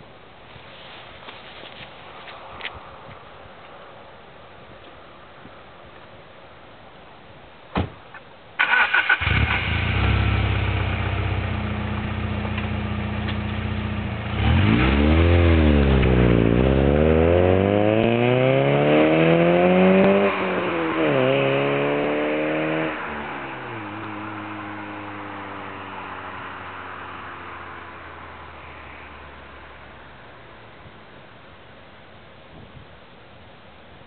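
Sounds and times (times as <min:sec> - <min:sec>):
car engine revving: 0:08.6 - 0:28.8.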